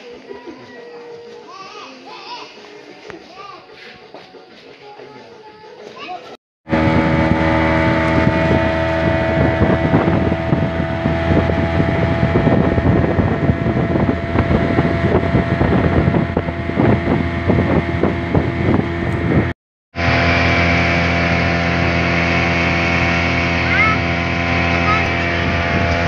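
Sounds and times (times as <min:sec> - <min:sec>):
wind buffeting microphone: 0:06.7 - 0:19.6, 0:21.5 - 0:26.0
boat outboard motor running: 0:06.7 - 0:26.0.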